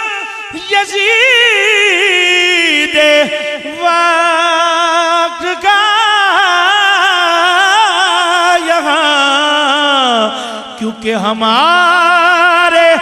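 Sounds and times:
man singing: 0.0 - 13.0.

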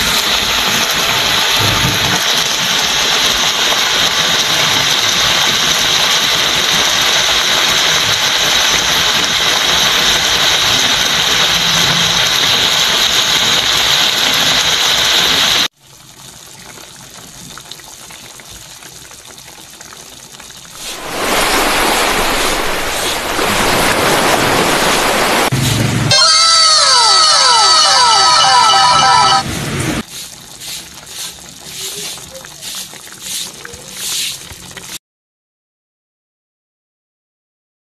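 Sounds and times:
food simmering bubbling hiss: 15.6 - 21.8, 30.0 - 35.0.

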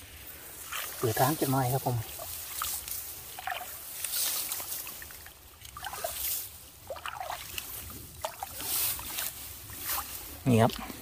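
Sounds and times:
swishes through vegetation and water: 0.0 - 11.0.

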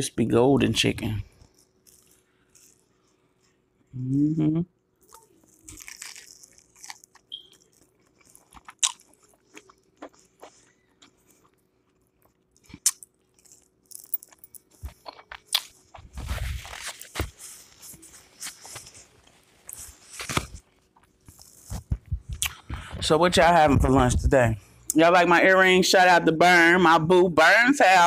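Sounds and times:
chewing crispy fried food: 5.0 - 23.0.

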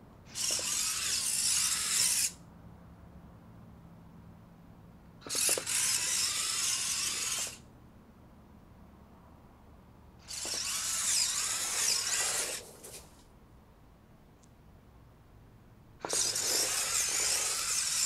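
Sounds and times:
toy robot car motors whirring: 0.3 - 2.4, 5.2 - 7.6, 10.2 - 13.1, 16.0 - 18.0.

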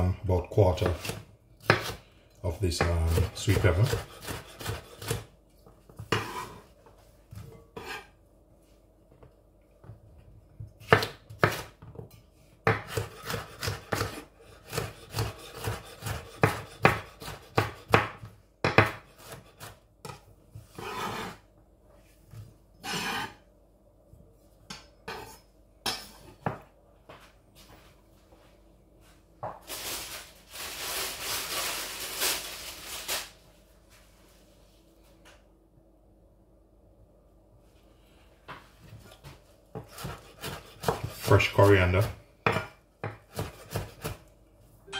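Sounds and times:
knife chopping on wooden board: 0.8 - 2.0, 2.8 - 5.3, 10.8 - 11.8, 12.6 - 20.2, 39.7 - 41.4, 42.0 - 44.2
knife scraping across board: 6.0 - 6.7, 7.8 - 8.1, 12.9 - 17.8, 19.1 - 21.4, 22.8 - 23.4, 25.1 - 25.4, 39.8 - 41.6.

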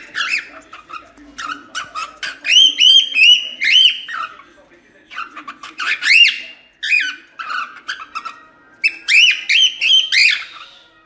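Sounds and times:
cockatiel chattering and whistling: 0.0 - 4.5, 5.1 - 10.9.

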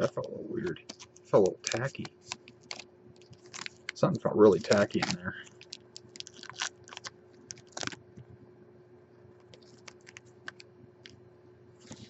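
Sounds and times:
cards clicking and rustling: 0.8 - 8.0, 9.5 - 10.6.

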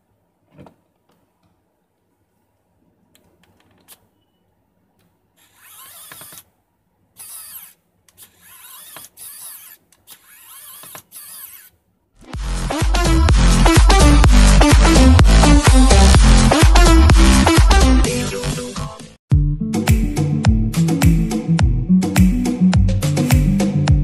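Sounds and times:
electric screwdriver whirring: 5.4 - 6.5, 7.2 - 11.8.

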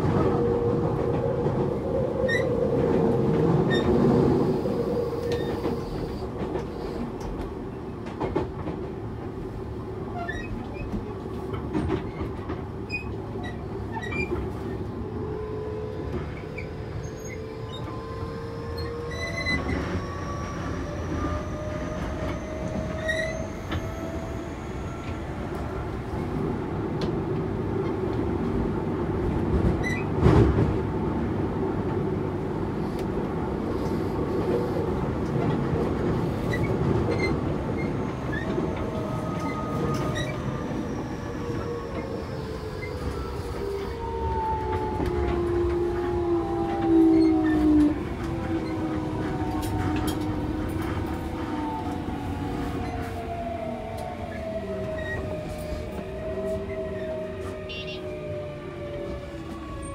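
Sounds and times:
train inverter whine: 0.0 - 59.9
wheels rumbling on rail: 0.0 - 59.9
rail clicks: 33.0 - 57.8.

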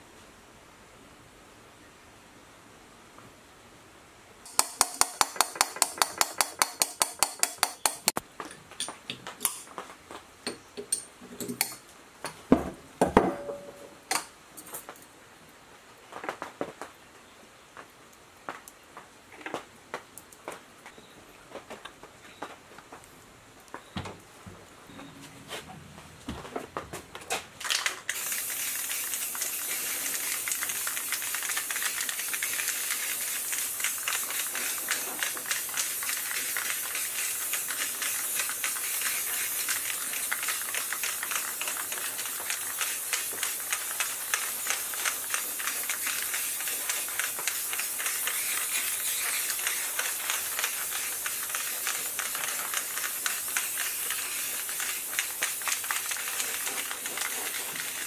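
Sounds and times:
high-pressure spray hissing: 4.5 - 8.2, 28.1 - 58.0.

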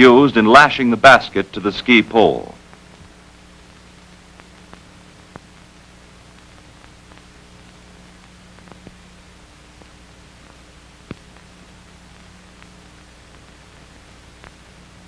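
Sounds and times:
film soundtrack hiss and hum: 0.0 - 15.0
faint clicks: 3.7 - 5.7, 6.3 - 9.0, 9.8 - 11.5, 12.1 - 14.7.

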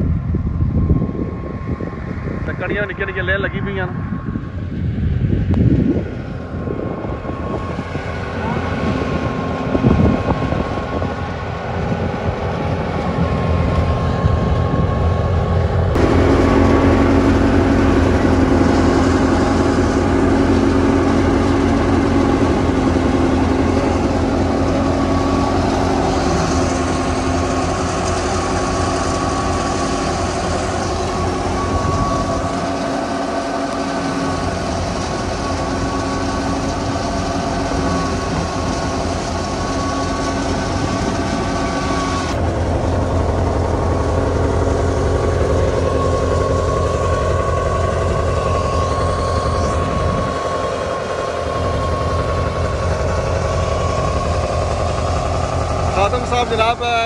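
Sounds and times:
steady whine: 0.0 - 57.0
threshing machine engine hum: 0.0 - 57.0.

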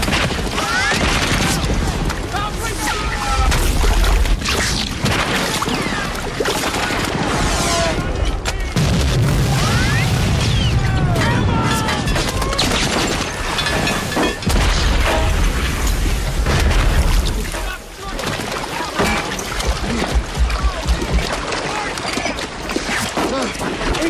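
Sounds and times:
rapid gunfire: 0.0 - 2.1
surf and splashing water: 0.0 - 24.0
explosion booms with low rumbles: 7.0 - 17.6.

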